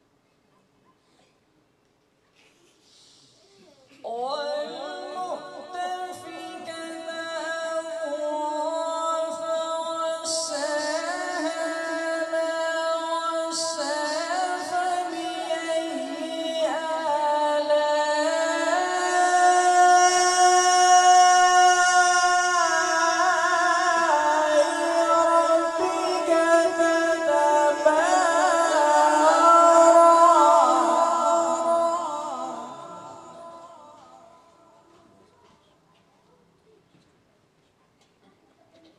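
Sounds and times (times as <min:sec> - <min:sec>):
man reciting melodically: 0:04.0 - 0:34.9.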